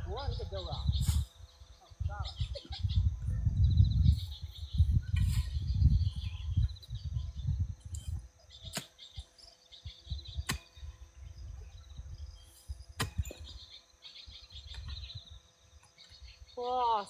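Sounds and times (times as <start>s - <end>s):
insects chirping: 0.0s - 17.0s
digging tool chopping into soil: 8.6s - 9.2s, 10.4s - 10.8s, 12.9s - 13.6s.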